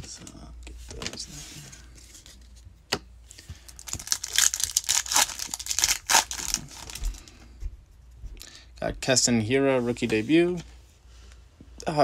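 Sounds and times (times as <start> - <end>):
foil wrapper tearing and crinkling: 3.8 - 7.0.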